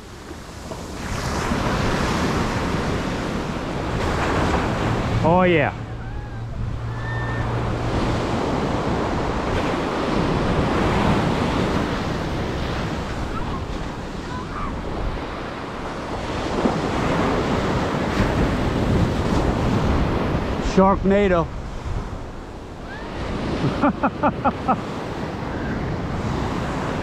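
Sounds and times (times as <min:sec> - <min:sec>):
surf breaking on beach: 0:00.0 - 0:27.0
wind buffeting microphone: 0:00.0 - 0:27.0.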